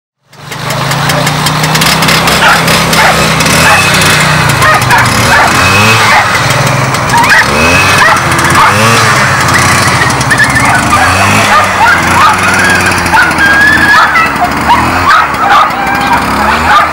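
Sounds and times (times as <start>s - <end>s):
small engine running steadily: 0.2s - 16.9s
dog barking and yelping: 2.4s - 3.9s, 4.6s - 6.4s, 7.1s - 16.9s.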